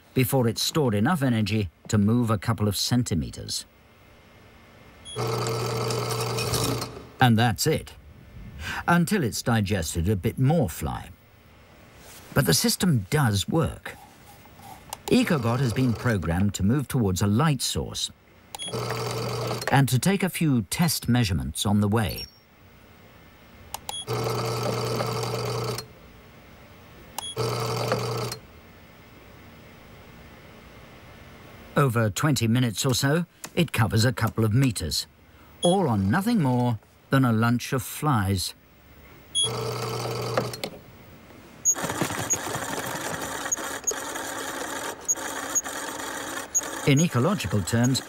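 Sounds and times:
click: 23.7s - 24.0s
small electric motors whirring: 41.7s - 48.0s.

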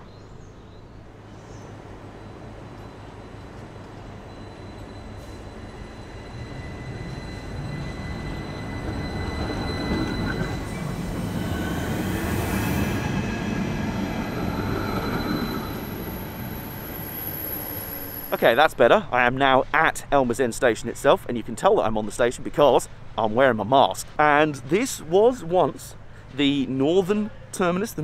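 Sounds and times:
tram running past: 1.0s - 19.6s.

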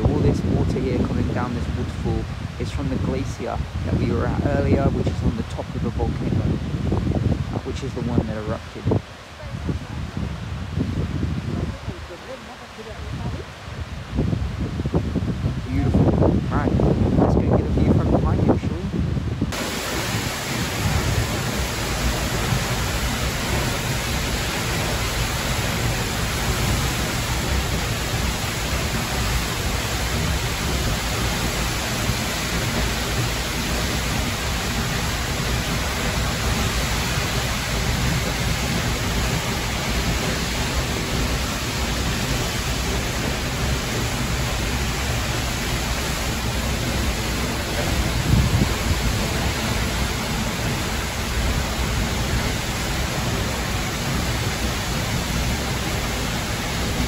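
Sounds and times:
waterfall roaring: 0.0s - 57.0s.

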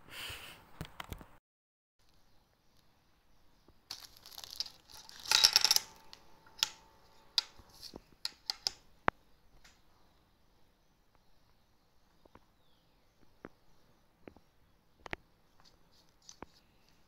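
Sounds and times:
plastic bag crinkling: 3.9s - 6.1s.

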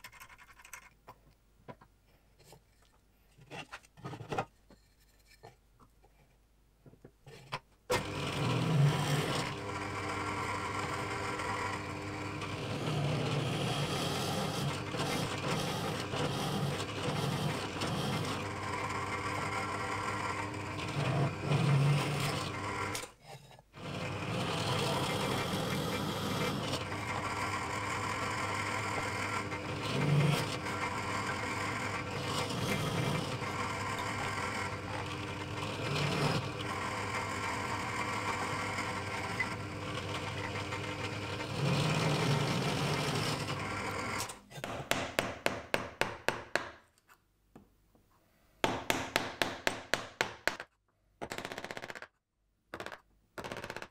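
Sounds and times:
drill press boring into wood: 7.9s - 23.1s, 23.8s - 44.4s
chisel tapping wood: 44.6s - 46.8s, 48.6s - 50.7s.

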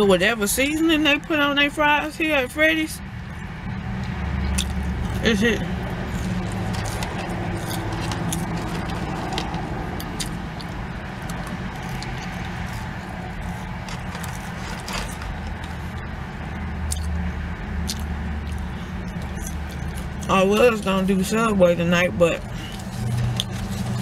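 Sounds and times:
car engine idling: 1.3s - 24.0s
clicks and rustles of eating fries: 6.0s - 16.1s, 17.8s - 21.2s, 22.5s - 24.0s.

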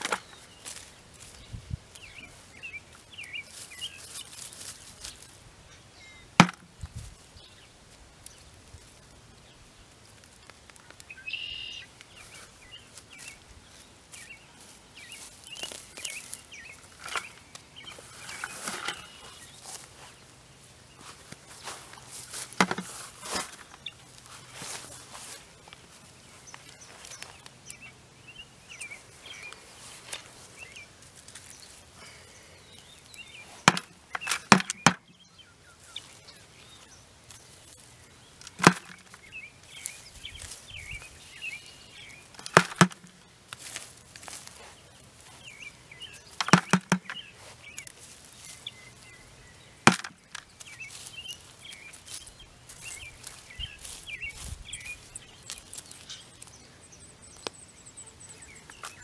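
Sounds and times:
birds chirping: 0.0s - 8.6s, 9.3s - 59.0s
hand fork digging in mulch: 14.1s - 20.2s, 21.0s - 25.5s, 38.4s - 41.0s, 42.2s - 45.5s, 46.2s - 48.5s
sharp knocks: 38.6s - 39.1s, 46.4s - 47.2s.

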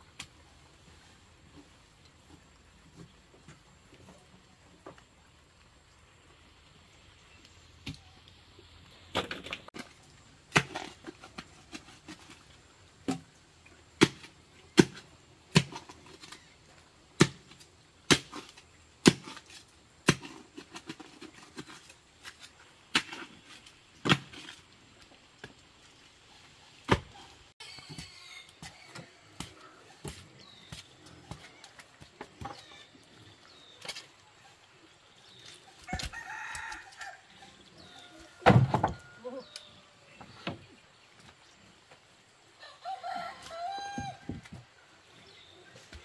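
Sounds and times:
wood being struck and pried apart: 38.4s - 39.0s.

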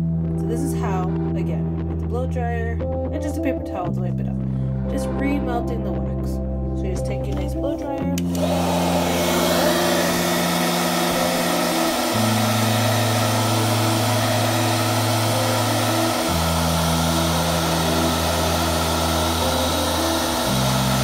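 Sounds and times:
blow dryer running: 8.2s - 21.0s.

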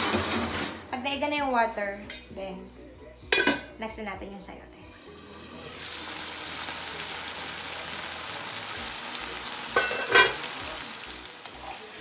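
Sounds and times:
food sizzling in a frying pan: 5.0s - 12.0s.

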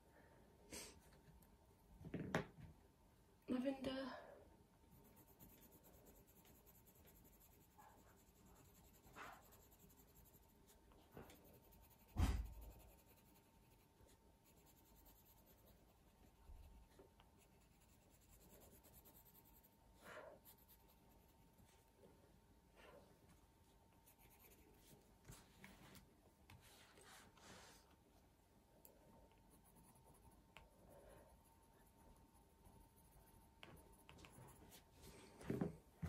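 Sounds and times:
pencil scratching on paper: 4.9s - 19.8s, 20.4s - 21.8s, 24.0s - 25.5s, 29.4s - 34.9s.

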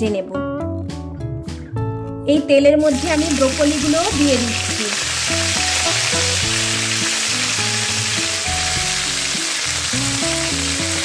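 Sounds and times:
background music of held notes: 0.0s - 11.0s
vegetables sizzling in oil: 2.8s - 11.0s.

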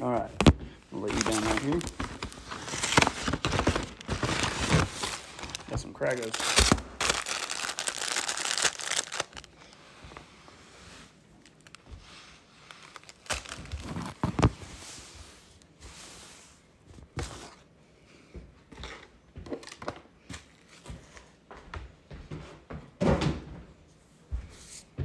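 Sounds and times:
objects knocking and thudding: 22.9s - 23.7s.

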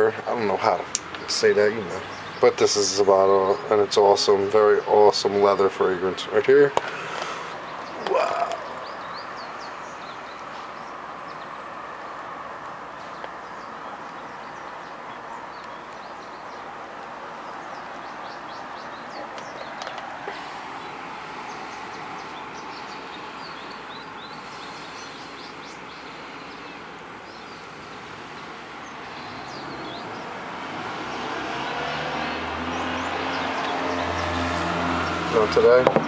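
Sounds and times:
small birds chirping: 0.0s - 36.0s
background hiss: 6.8s - 31.0s
vehicle engine: 16.7s - 36.0s.

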